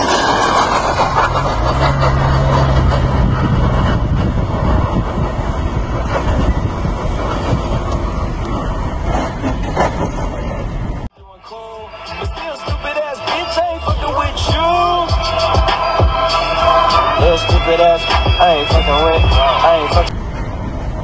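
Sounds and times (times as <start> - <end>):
low engine hum: 0.0 - 11.1, 12.8 - 21.0
road noise from inside a car: 0.0 - 11.2.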